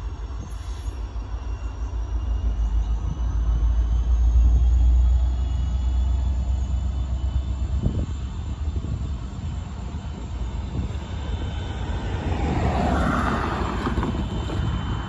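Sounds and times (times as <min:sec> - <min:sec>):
diesel locomotive rumble: 0:00.0 - 0:15.0.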